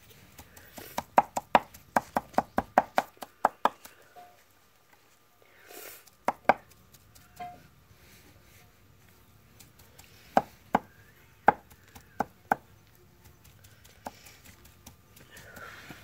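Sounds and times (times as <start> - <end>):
knife chopping on wooden board: 0.8 - 3.8, 6.2 - 6.7.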